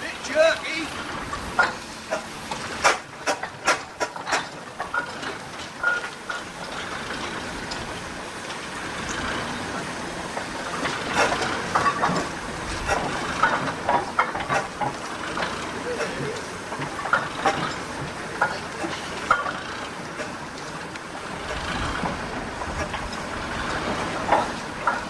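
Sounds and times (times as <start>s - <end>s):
steam engine knocks and clanks: 0.0s - 25.0s
steam hissing: 0.0s - 25.0s.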